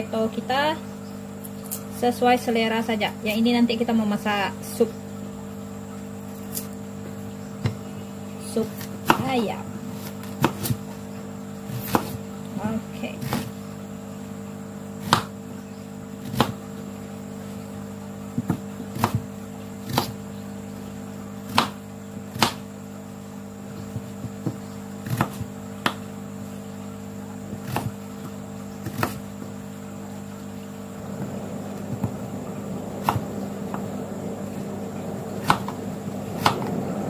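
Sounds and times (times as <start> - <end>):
knife cutting on plastic board: 9.9 - 11.0, 11.7 - 12.2, 13.2 - 13.6, 15.0 - 15.4, 18.4 - 20.2, 21.5 - 22.7, 23.8 - 26.0, 27.5 - 29.3, 35.4 - 35.8
low hum: 25.8 - 37.0.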